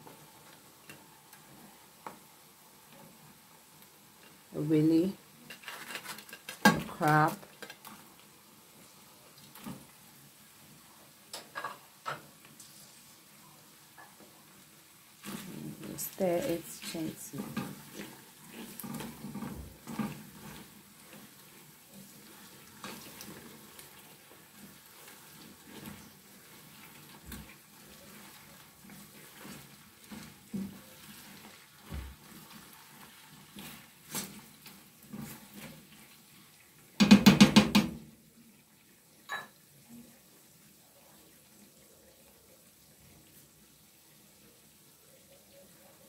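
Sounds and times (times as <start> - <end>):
faint sizzle: 0.0 - 46.0
spatula scraping frying pan: 5.4 - 8.0, 15.2 - 36.3.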